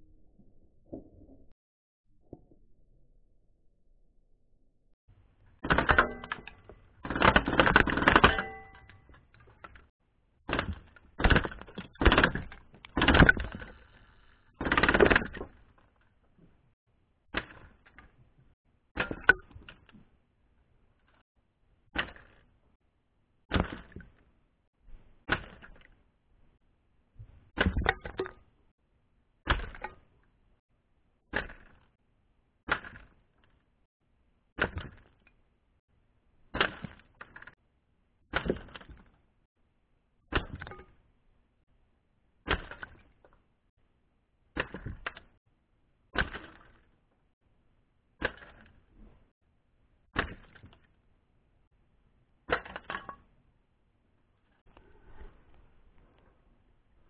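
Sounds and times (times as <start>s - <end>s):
targets clattering: 5.6s - 9.9s.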